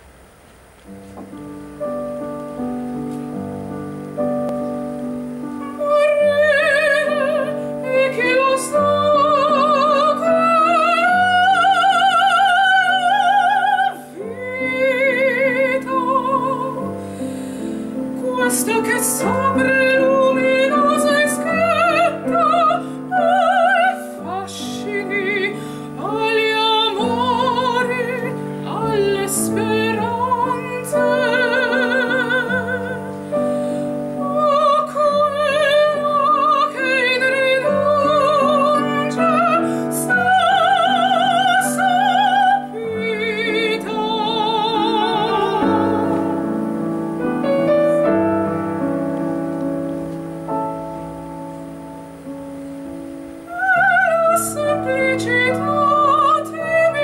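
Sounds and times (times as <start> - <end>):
piano chords: 0.0 - 57.0
woman singing operatically: 5.6 - 17.2, 17.9 - 33.2, 34.1 - 46.7, 53.5 - 57.0.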